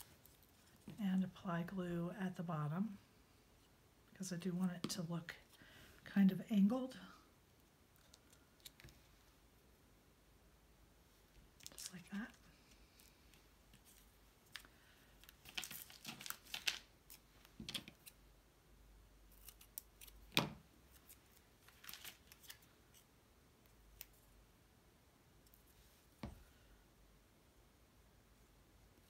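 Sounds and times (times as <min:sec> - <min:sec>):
paper rustling: 0:15.3 - 0:18.1, 0:20.9 - 0:23.0.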